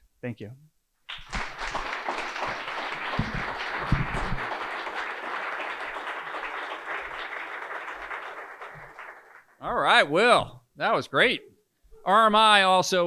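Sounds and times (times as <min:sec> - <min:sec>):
audience applauding: 0:01.1 - 0:09.6.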